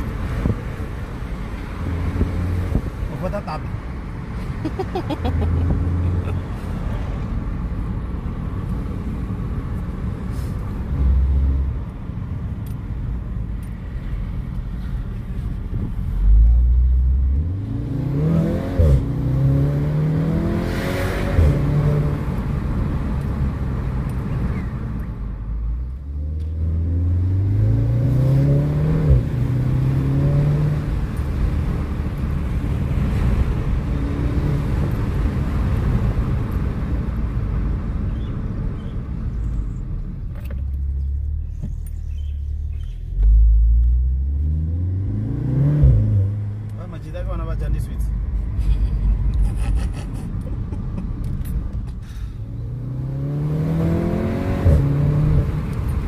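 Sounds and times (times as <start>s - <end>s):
car engine accelerating: 25.8s - 36.7s, 48.8s - 56.0s.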